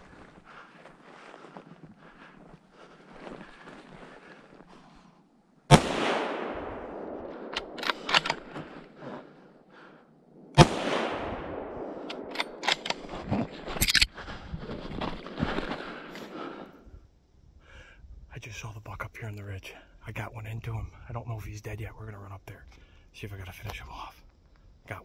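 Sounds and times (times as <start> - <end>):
rifle shots with echo: 5.7 - 8.8, 10.4 - 13.2
sharp clicks: 7.5 - 8.6, 12.0 - 13.1.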